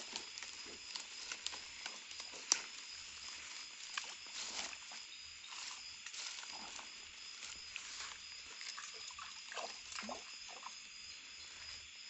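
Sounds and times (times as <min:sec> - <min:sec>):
rustling of twigs and leaves: 0:00.0 - 0:10.0, 0:10.8 - 0:12.0
night insects chirring: 0:00.0 - 0:12.0
twig snapping: 0:00.1 - 0:02.8.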